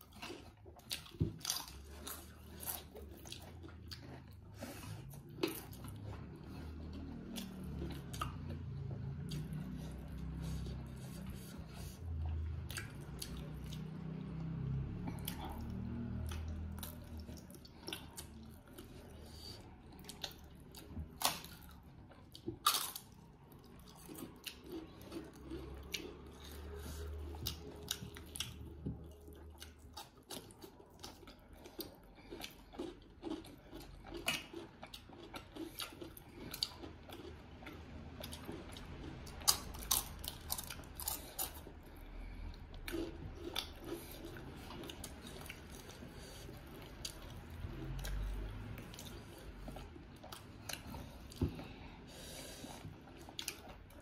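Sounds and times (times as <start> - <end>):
wet chewing and lip smacks: 52.6 - 54.0.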